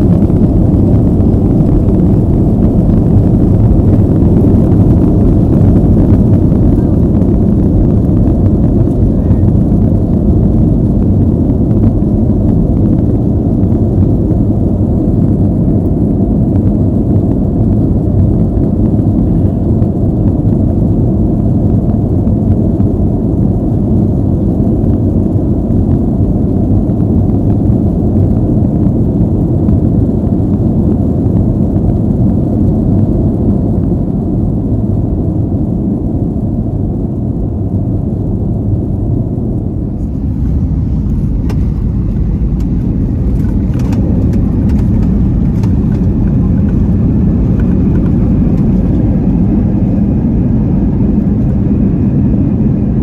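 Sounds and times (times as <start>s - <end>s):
airliner cabin rumble: 0.0s - 53.0s.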